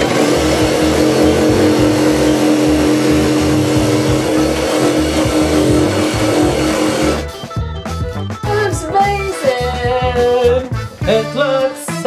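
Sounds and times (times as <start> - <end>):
power tool motor whine: 0.0 - 7.2.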